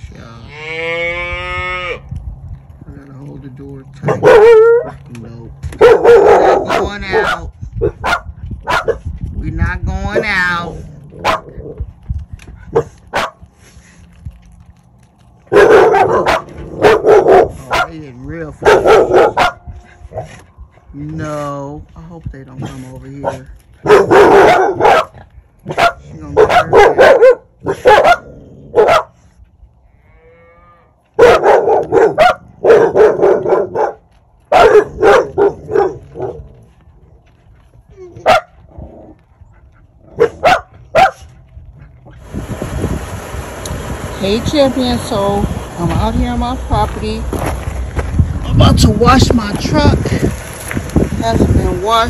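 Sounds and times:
dogs barking: 4.0 - 9.1, 11.1 - 11.8, 12.6 - 13.5, 15.4 - 18.0, 18.6 - 20.4, 23.2 - 29.2, 31.2 - 36.7, 38.0 - 38.7, 39.6 - 42.1.

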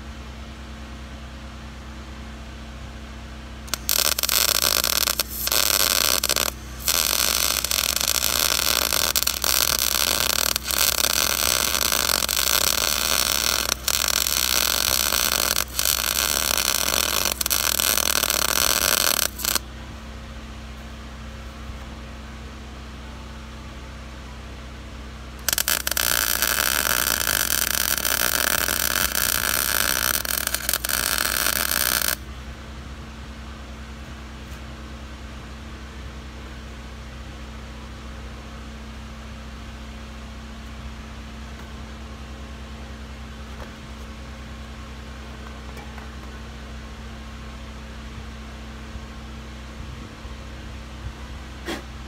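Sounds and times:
low steady hum: 0.0 - 52.0
welding arc crackling hiss: 3.7 - 19.6, 25.4 - 32.2.

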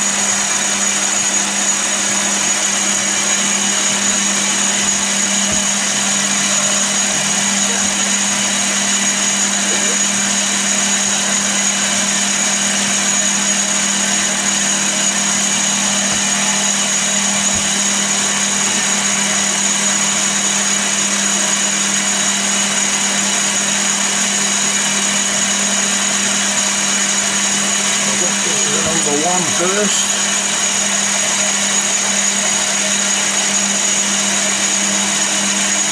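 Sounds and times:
lathe motor and gear whine: 0.0 - 35.9
constant low hum: 26.6 - 31.4.

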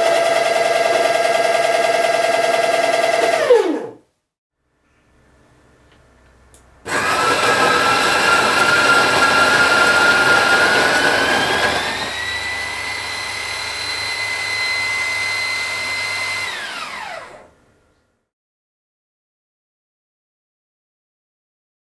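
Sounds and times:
electric coffee grinder running: 0.0 - 3.9, 6.9 - 17.5.

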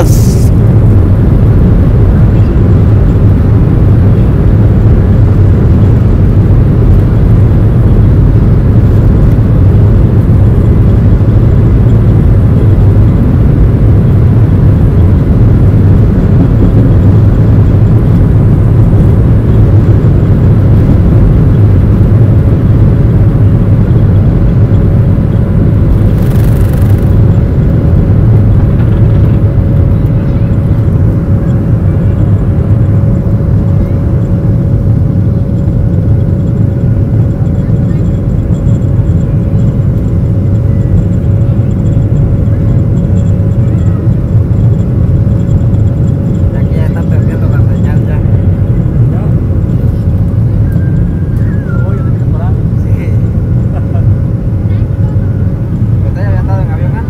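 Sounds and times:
brief hiss: 0.0 - 0.5
jet engines roaring: 0.0 - 57.0
steady whine: 0.0 - 57.0.

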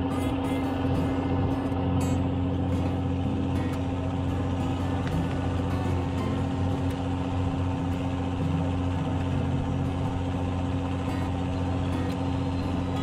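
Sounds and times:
boat engine droning: 0.0 - 13.0.

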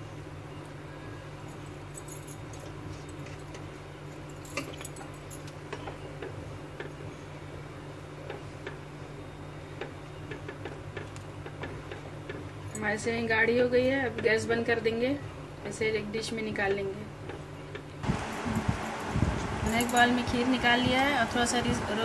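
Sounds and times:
steady low hum: 17.0 - 22.0.

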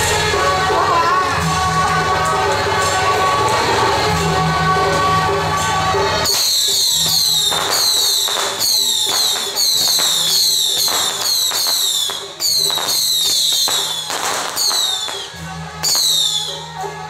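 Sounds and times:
band music: 0.0 - 17.0
whistling firecrackers: 6.2 - 16.9.

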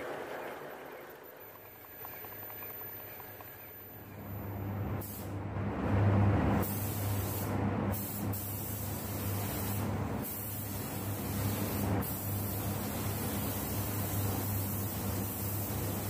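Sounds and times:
steady low hum: 1.6 - 16.0
paint spray gun hissing: 5.0 - 5.3, 6.6 - 16.0.

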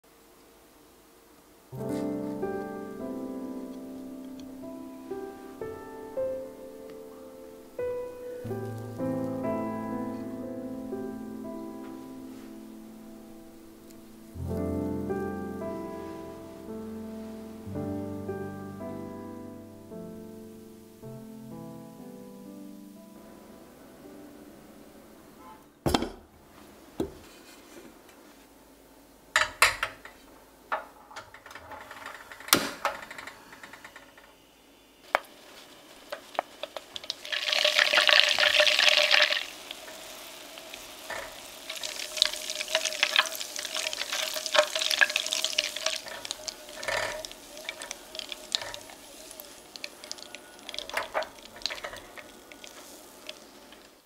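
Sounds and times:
butter sizzling in a saucepan: 35.0 - 54.0.

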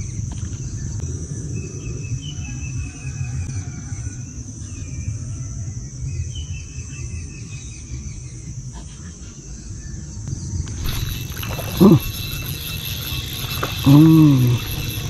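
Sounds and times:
high insect drone: 10.5 - 15.0.

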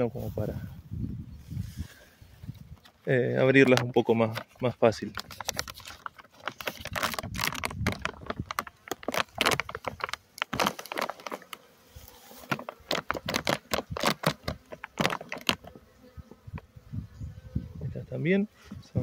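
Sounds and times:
plastic sheeting crinkling: 5.0 - 15.6.

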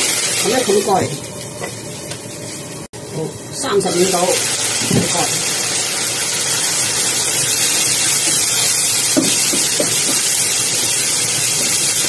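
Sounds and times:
food sizzling in a wok: 0.0 - 12.0
spatula stirring in a wok: 7.6 - 12.0.

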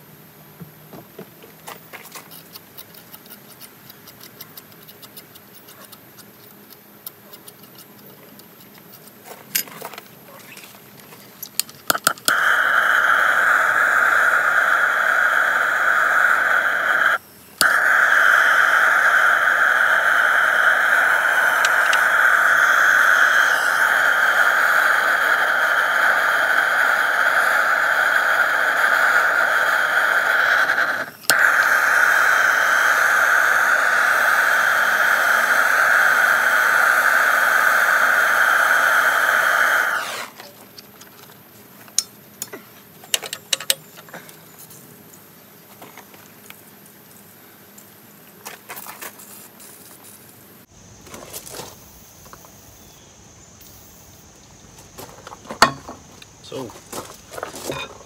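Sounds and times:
gas torch igniter clicks: 11.5 - 40.4
gas torch flame hissing: 11.5 - 40.6, 53.6 - 54.3.

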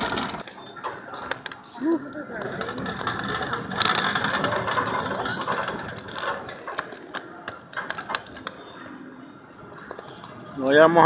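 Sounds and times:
shopping cart rattling: 0.0 - 8.6.

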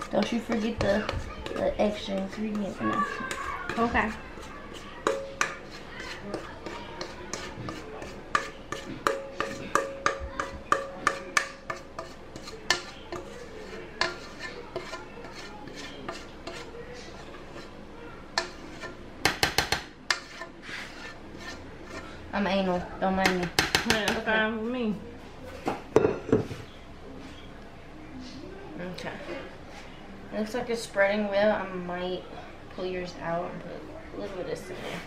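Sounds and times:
spoon scraping metal bowl: 0.0 - 22.2.

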